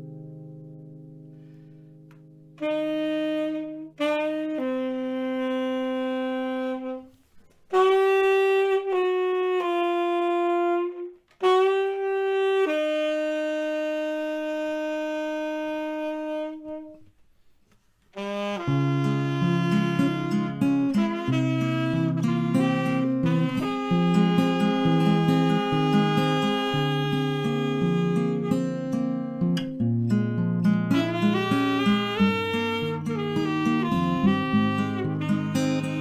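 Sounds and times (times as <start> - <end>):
guitar strumming: 0.0 - 2.8, 18.7 - 36.0
saxophone long held notes: 2.5 - 17.2, 18.2 - 36.0.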